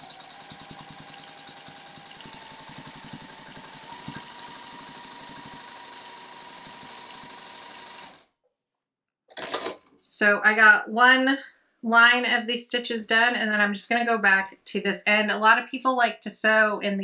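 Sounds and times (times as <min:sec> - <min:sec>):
sewing machine stitching: 0:00.0 - 0:08.3.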